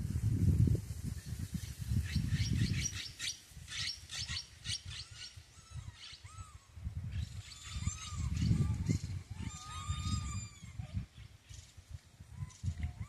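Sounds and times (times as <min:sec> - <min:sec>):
animal chirping calls: 0:07.5 - 0:10.8.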